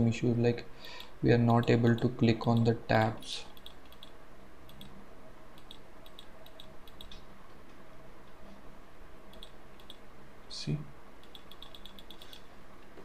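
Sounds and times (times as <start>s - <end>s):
faint low hum: 0.0s - 13.0s
computer mouse clicking: 3.6s - 5.0s, 5.6s - 7.2s, 9.3s - 10.0s, 11.2s - 12.5s.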